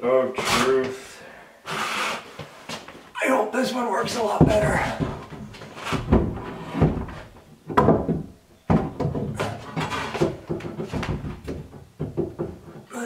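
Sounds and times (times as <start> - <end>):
wooden door knocks and clunks: 4.1 - 12.9.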